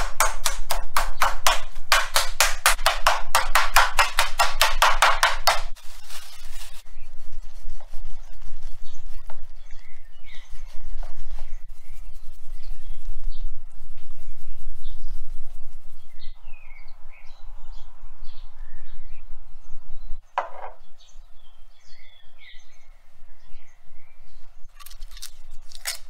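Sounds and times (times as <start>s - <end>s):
meat mallet pounding steak: 0.0s - 5.8s
plastic wrap rustle: 5.7s - 9.7s.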